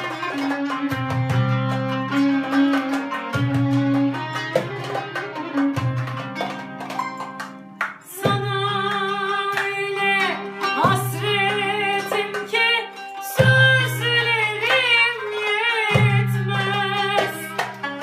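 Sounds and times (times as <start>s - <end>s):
plucked string melody: 0.0s - 18.0s
person singing wavering notes: 8.0s - 17.6s.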